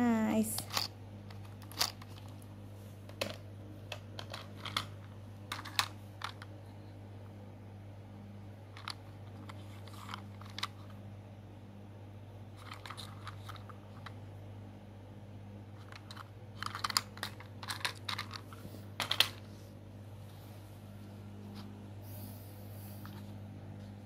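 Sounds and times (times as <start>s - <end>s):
steady low hum: 0.0s - 24.0s
plastic toys clicking: 0.6s - 2.4s, 3.2s - 6.5s, 15.8s - 19.4s.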